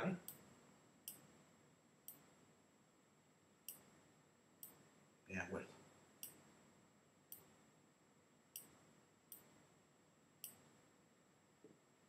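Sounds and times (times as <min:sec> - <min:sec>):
computer mouse clicks: 0:08.6 - 0:09.5.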